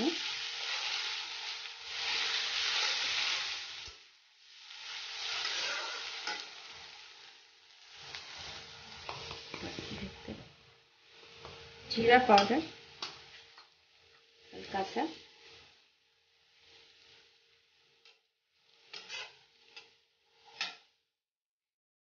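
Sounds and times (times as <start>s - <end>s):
onion and garlic sizzling in oil: 0.0s - 21.1s
metal spatula scraping pan: 4.8s - 6.9s, 7.9s - 10.4s, 11.2s - 21.0s.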